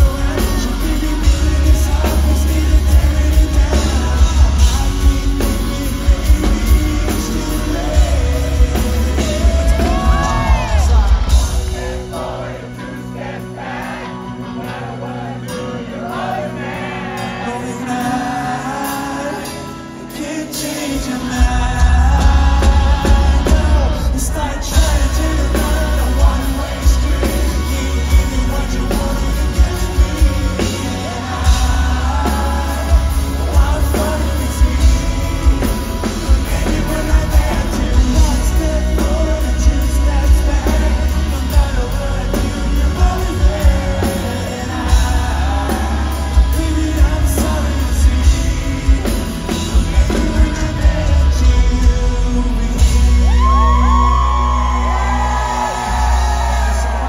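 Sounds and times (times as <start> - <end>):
man singing: 0.0 - 57.0
rock band playing: 0.0 - 57.0.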